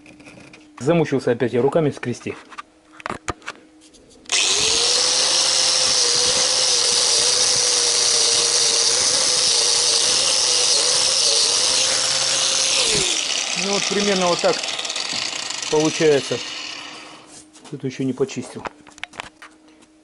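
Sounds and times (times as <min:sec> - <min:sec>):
angle grinder wire brush scouring: 0:04.4 - 0:17.5.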